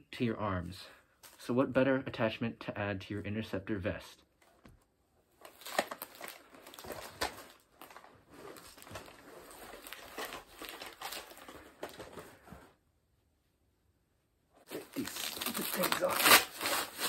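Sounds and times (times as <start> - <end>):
fabric and gear rustling: 5.6 - 12.8.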